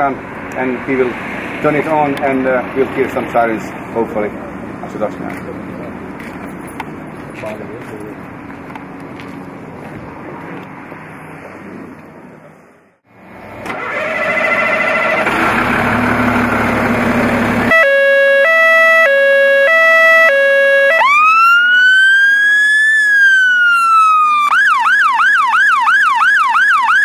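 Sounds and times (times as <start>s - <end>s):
fire engine siren: 13.7s - 27.0s.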